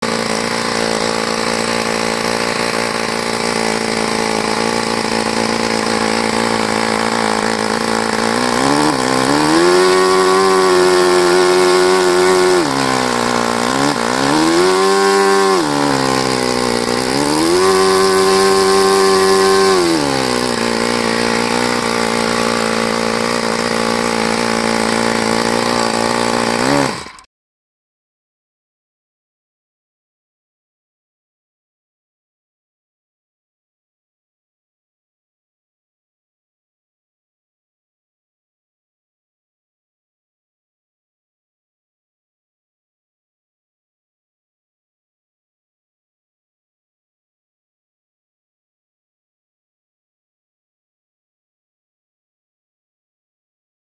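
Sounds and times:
engine revving up: 0.0s - 27.3s
model airplane engine idling: 0.0s - 27.3s.

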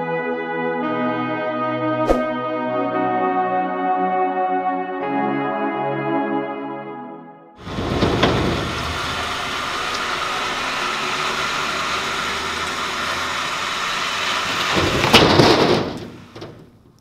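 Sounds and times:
metallic crash and clatter: 7.6s - 9.9s, 14.4s - 16.7s
steel section dragging: 7.6s - 16.3s
truck engine running: 7.6s - 17.0s.

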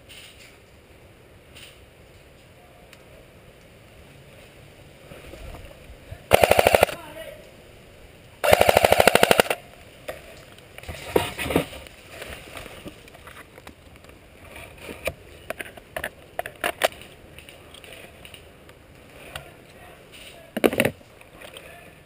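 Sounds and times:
airsoft rifle full-auto burst: 6.3s - 7.1s, 8.4s - 9.7s.

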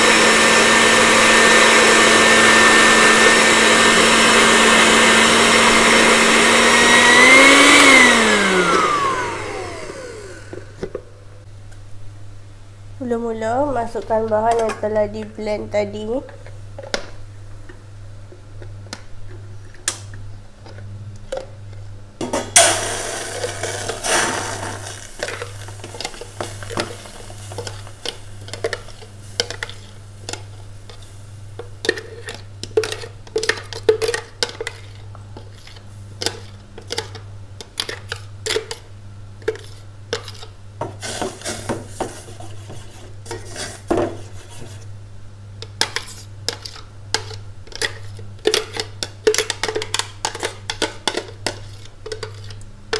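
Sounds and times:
spoon scraping and knocking on metal: 45.7s - 52.6s.

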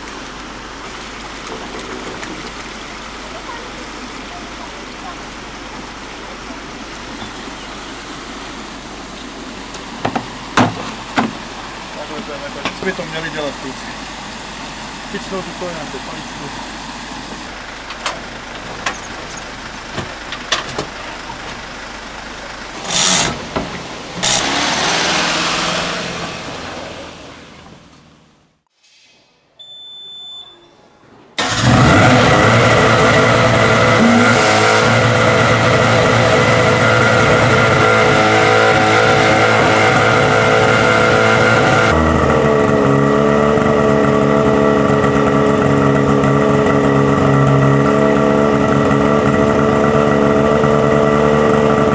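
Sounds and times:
pump engine running: 0.0s - 27.6s, 31.4s - 51.9s
loud knocks: 10.0s - 11.4s.

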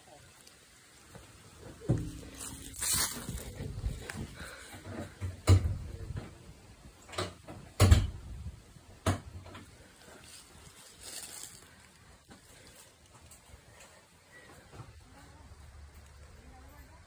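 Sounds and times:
sharp knocks and bumps: 1.8s - 6.4s, 7.1s - 8.3s.

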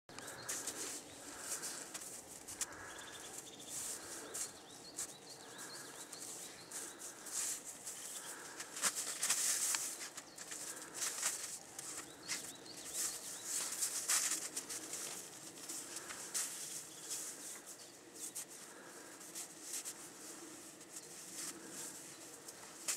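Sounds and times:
small birds chirping faintly: 0.1s - 22.9s.

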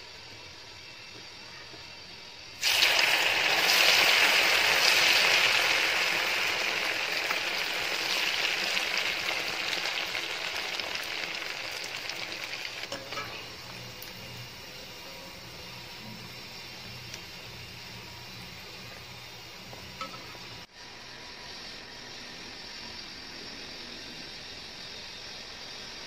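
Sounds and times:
hot oil sizzling: 2.3s - 20.9s.

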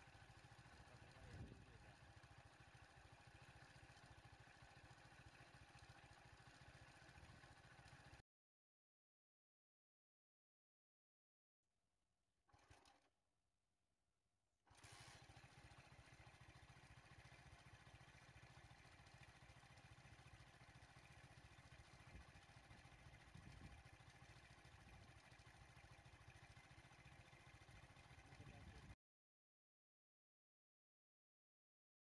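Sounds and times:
vehicle engine idling: 15.0s - 28.9s.

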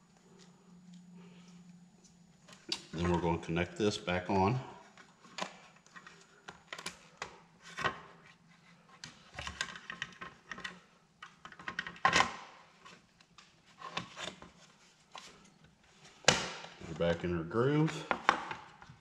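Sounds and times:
plastic parts clicking and knocking: 9.0s - 12.4s.

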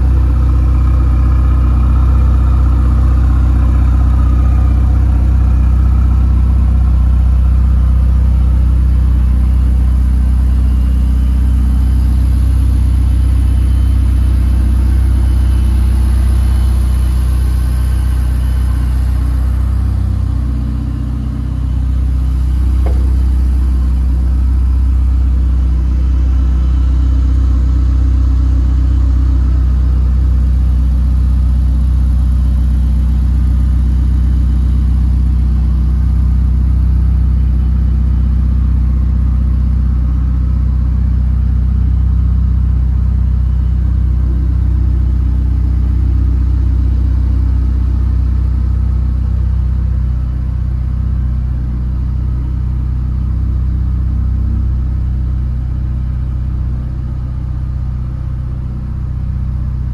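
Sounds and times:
road rumble: 0.0s - 35.8s
car engine cruising: 0.0s - 49.2s.

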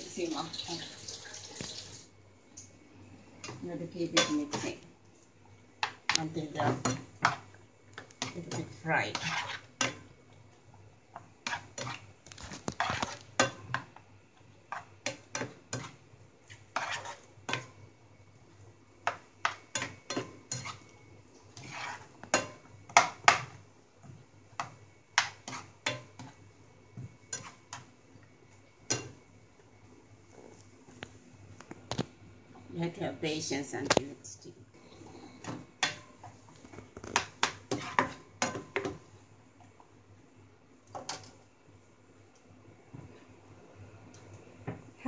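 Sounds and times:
spatula scraping and knocking on pan: 5.8s - 10.1s, 11.2s - 13.9s, 14.7s - 17.8s, 21.6s - 27.9s, 35.4s - 39.0s.

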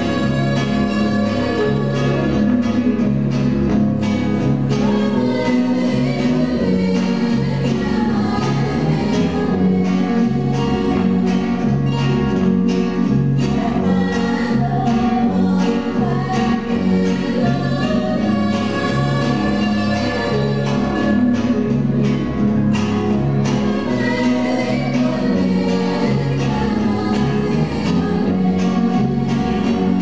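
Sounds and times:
women singing: 0.0s - 3.1s, 4.6s - 12.4s, 13.4s - 22.1s, 23.3s - 30.0s
electric bass guitar: 0.0s - 30.0s
strummed acoustic guitars: 0.0s - 30.0s.

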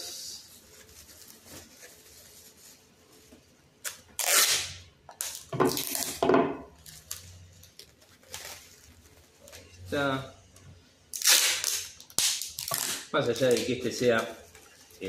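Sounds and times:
packing tape ripping off roll: 3.8s - 6.2s, 11.1s - 14.3s.

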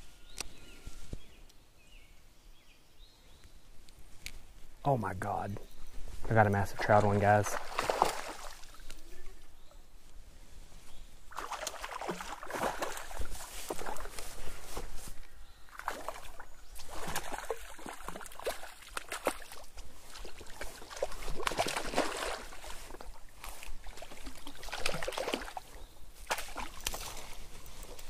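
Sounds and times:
rustling vegetation: 0.0s - 2.2s, 3.0s - 28.0s
fish splashing in shallow water: 6.8s - 9.0s, 11.3s - 14.5s, 15.7s - 28.0s.

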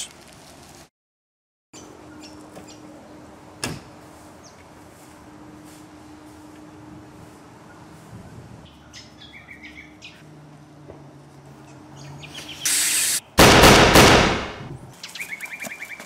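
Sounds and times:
loud gunshot: 13.4s - 14.8s.

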